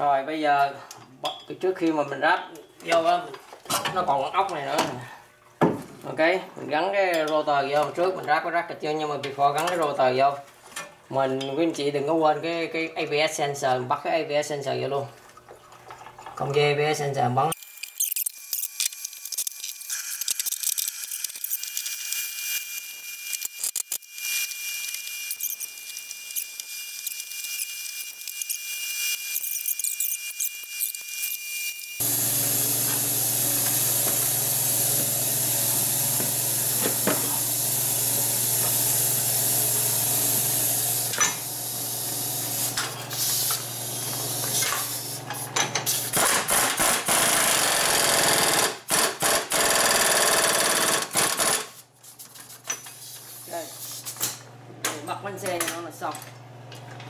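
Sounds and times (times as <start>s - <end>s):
tools and parts clinking: 17.5s - 31.9s
pneumatic impact wrench: 17.6s - 51.9s.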